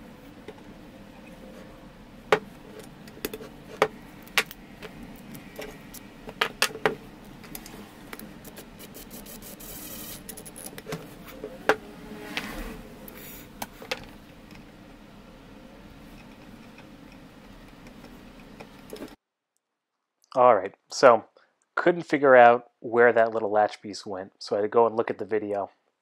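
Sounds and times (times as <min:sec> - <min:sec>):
metal rubbing on wood: 0:00.0 - 0:19.2.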